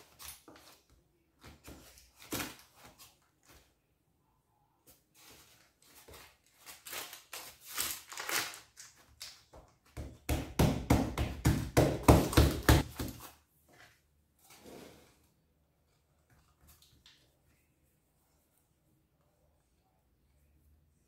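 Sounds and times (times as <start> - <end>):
baking paper crinkling: 4.9 - 9.7.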